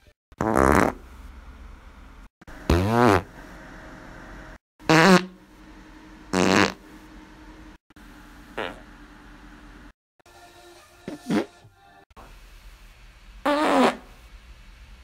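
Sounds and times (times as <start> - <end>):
short buzzy farts: 0.4 - 1.0, 2.7 - 3.3, 4.9 - 5.4, 6.3 - 6.8, 8.6 - 8.9, 11.1 - 11.7, 13.4 - 14.2.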